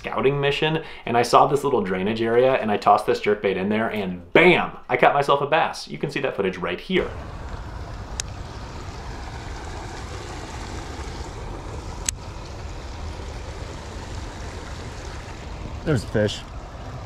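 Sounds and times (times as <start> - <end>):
steady hiss: 6.9 - 17.0
wind rumbling on microphone: 7.0 - 17.0.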